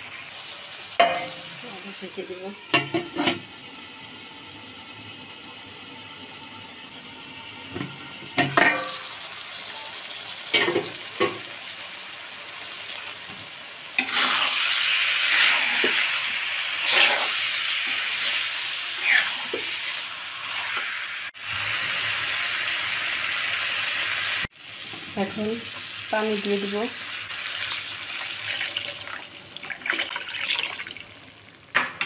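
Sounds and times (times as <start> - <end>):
meat sizzling in a pan: 0.0 - 29.8
metal cookware clinks: 1.0 - 1.4, 8.4 - 9.0
spatula scraping pan: 14.0 - 14.6, 16.8 - 19.9.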